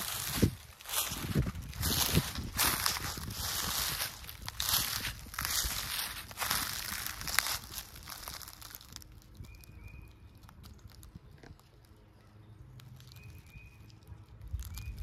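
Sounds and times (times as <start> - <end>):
footsteps crunching dry leaves: 0.0 - 12.0, 12.7 - 15.0
faint high bird chirps: 9.3 - 10.6, 12.0 - 15.0.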